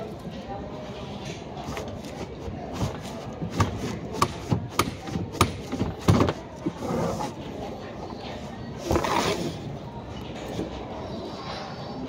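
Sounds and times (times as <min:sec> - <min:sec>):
panel rubbing and scraping: 0:01.6 - 0:07.4, 0:08.8 - 0:09.6.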